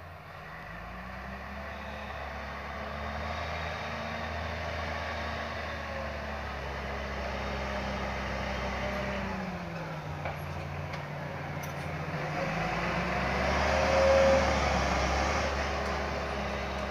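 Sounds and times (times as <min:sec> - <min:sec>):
tractor engine running: 0:03.8 - 0:16.9.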